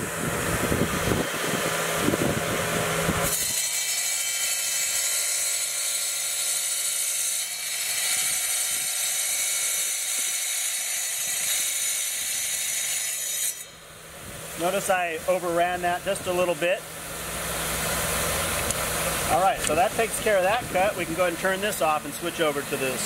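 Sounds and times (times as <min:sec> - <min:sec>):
wet tile saw motor: 0:00.0 - 0:13.7
saw blade cutting tile: 0:03.2 - 0:13.7.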